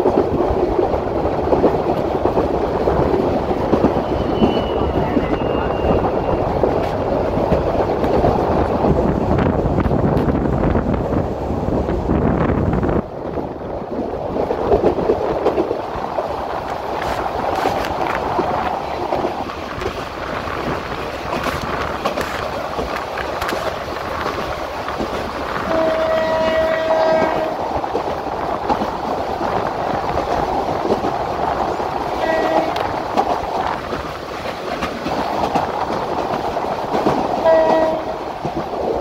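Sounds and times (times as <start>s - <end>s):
train rumble and clatter: 0.0s - 39.0s
train horn blast: 25.6s - 27.6s, 32.2s - 32.9s, 37.4s - 38.2s.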